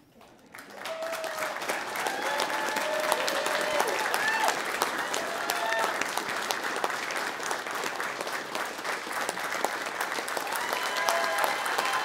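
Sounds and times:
crowd clapping: 0:00.0 - 0:12.0
people cheering and whooping: 0:00.7 - 0:06.2, 0:10.4 - 0:12.0.

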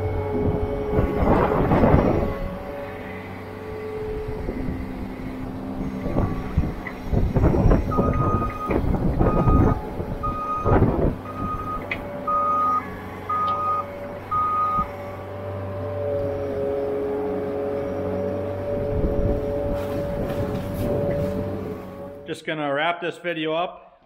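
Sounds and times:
skid loader engine running: 0:00.0 - 0:22.3
steady machine whine: 0:00.0 - 0:22.3
backup alarm beeping: 0:07.9 - 0:14.9.

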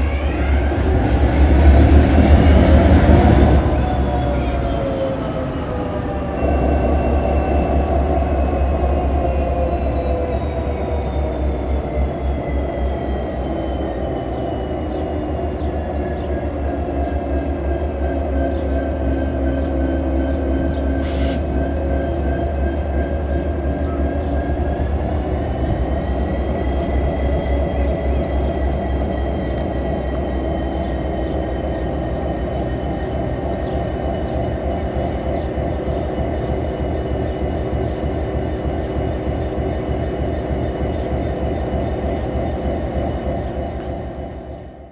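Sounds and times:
diesel locomotive engine idling: 0:00.0 - 0:44.9.

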